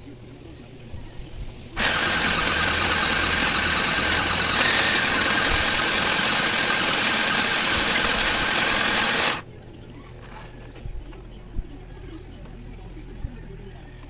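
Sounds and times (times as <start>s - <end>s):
sewing machine running: 1.8s - 9.4s.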